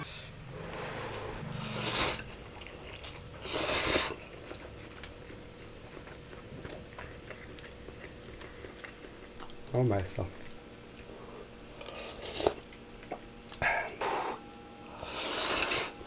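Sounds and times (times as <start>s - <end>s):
person slurping noodles: 0.6s - 4.2s, 15.0s - 16.0s
wet chewing: 0.7s - 13.7s.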